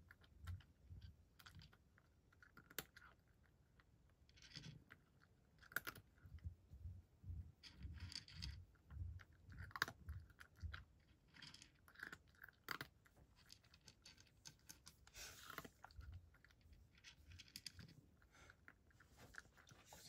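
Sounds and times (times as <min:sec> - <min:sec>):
cat crunching dry kibble: 0:04.4 - 0:06.2, 0:07.6 - 0:19.7.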